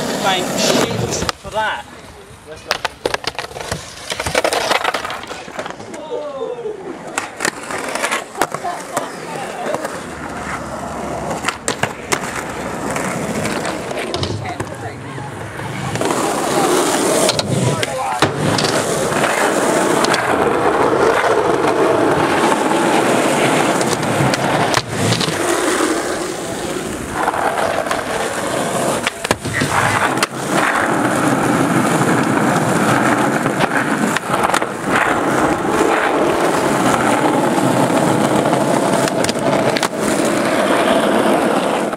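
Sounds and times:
skateboard clacks: 0.0s - 1.5s, 2.6s - 6.2s, 7.0s - 41.9s
skateboard wheels rolling on concrete: 0.0s - 41.9s.

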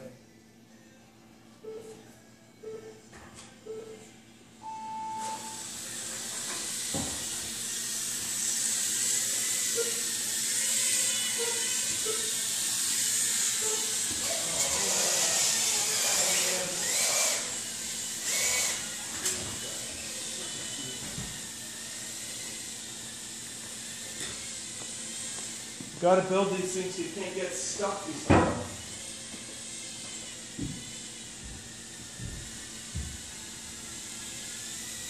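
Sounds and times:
race timer beeps: 1.6s - 1.9s, 2.6s - 3.0s, 3.6s - 4.0s, 4.6s - 5.6s
quadcopters buzzing whine: 4.0s - 35.0s.

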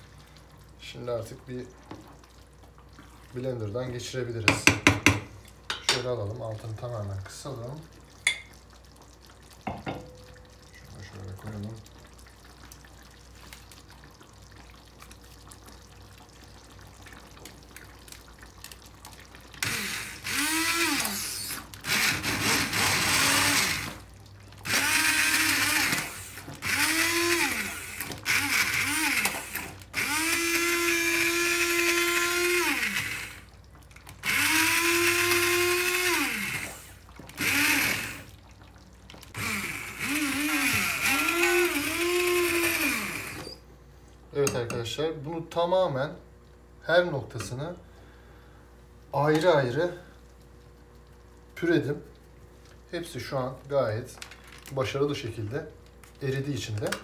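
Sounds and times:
immersion blender motor whine: 19.6s - 24.0s, 24.7s - 33.4s, 34.2s - 38.3s, 39.4s - 43.6s.

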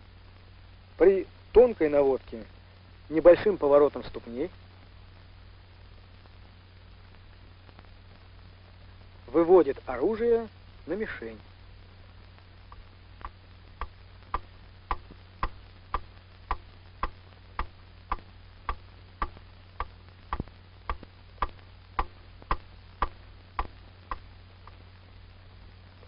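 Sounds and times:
mechanical ticking: 12.7s - 24.8s.

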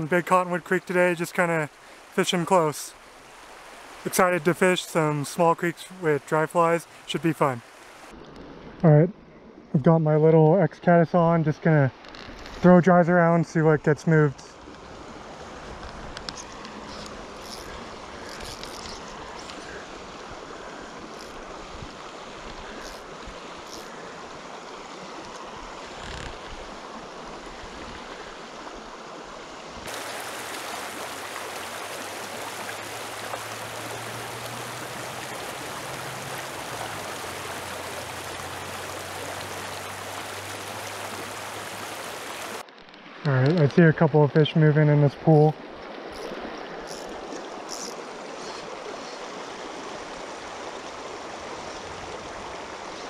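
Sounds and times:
creek running over cobbles: 0.0s - 8.2s, 11.6s - 53.0s.

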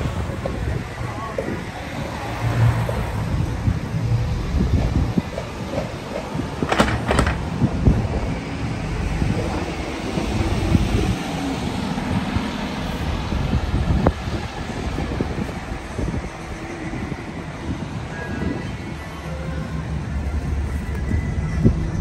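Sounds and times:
traffic driving past: 0.0s - 22.0s.

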